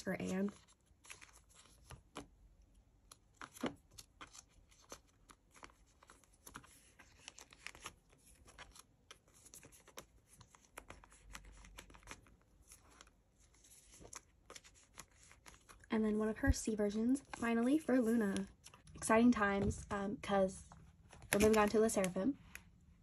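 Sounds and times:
plastic sleeves crinkling: 0:03.0 - 0:19.0, 0:20.7 - 0:22.8.

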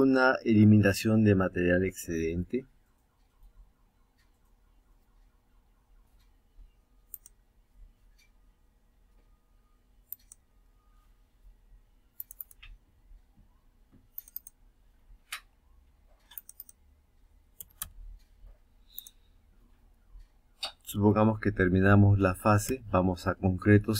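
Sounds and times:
computer mouse clicks: 0:07.1 - 0:07.4, 0:10.1 - 0:10.5, 0:12.2 - 0:12.8, 0:14.0 - 0:14.6, 0:15.2 - 0:16.8, 0:17.6 - 0:18.3, 0:18.9 - 0:19.3.

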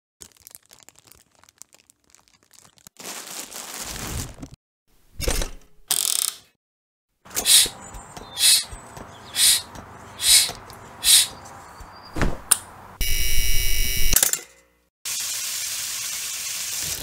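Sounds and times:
cling film crinkling: 0:00.2 - 0:04.6.

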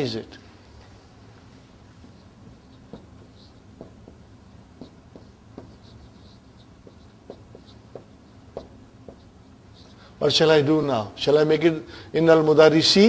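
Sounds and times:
steady low hum: 0:00.0 - 0:13.0
marker squeaking on whiteboard: 0:01.8 - 0:10.1.

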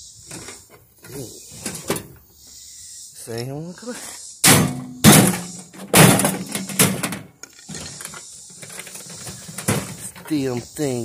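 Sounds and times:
hammer striking sheet metal: 0:04.4 - 0:07.0.

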